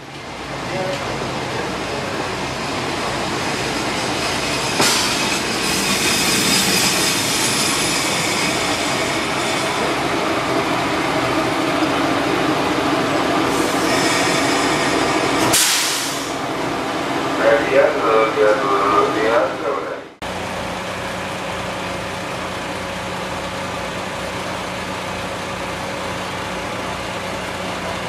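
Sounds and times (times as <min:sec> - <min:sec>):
train rumbling on rails: 0:00.0 - 0:28.0
high-pitched wheel squeal: 0:03.6 - 0:09.9, 0:13.6 - 0:15.1
sharp clack of train: 0:03.6 - 0:10.0, 0:13.5 - 0:16.4.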